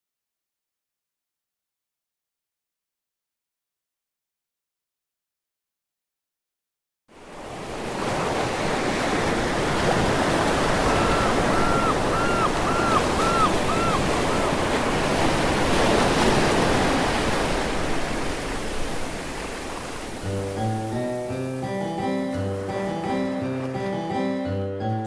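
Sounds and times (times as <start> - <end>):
ocean waves washing: 7.1 - 25.0
short high calls: 11.0 - 14.5
sea shanty instrumental intro: 20.2 - 25.0.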